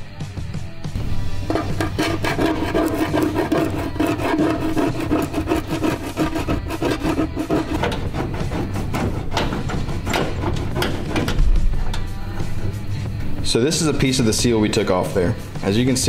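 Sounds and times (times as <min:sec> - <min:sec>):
hand scraper rasping on metal: 0:01.4 - 0:13.0.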